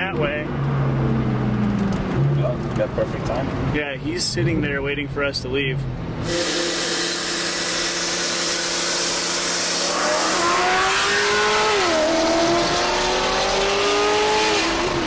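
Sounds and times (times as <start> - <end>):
car engine accelerating: 0.1 - 3.7, 7.6 - 15.0.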